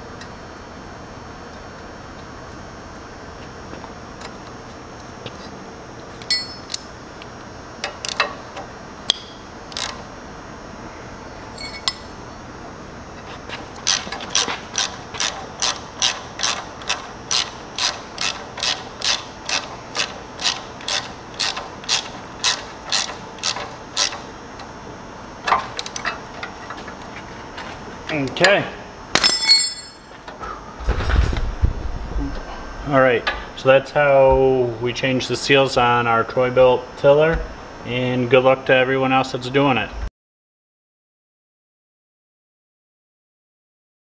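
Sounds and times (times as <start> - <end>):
socket ratchet clicking: 13.8 - 24.2.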